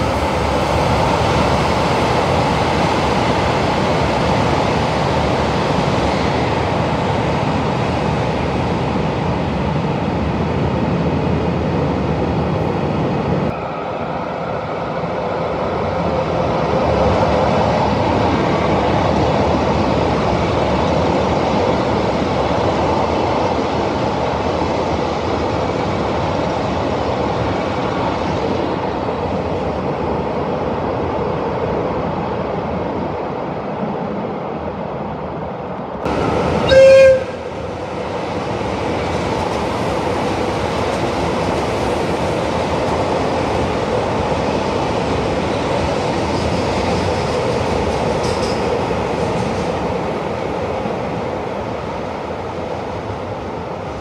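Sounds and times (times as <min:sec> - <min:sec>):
trains rumbling on rails: 0:00.0 - 0:54.0
train horn blast: 0:36.6 - 0:37.5.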